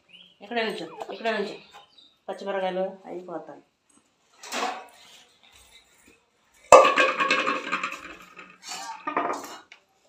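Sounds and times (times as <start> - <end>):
metal pot clanging on concrete: 6.7 - 9.6.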